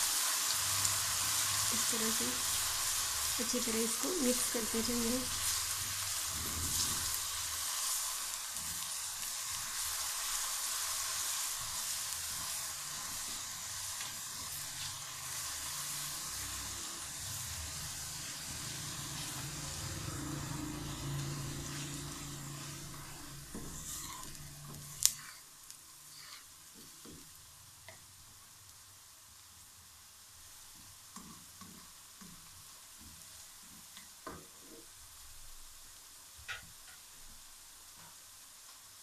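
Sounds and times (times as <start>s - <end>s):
onions sizzling in oil: 0.0s - 39.0s
spatula stirring: 8.6s - 25.5s, 26.1s - 27.2s.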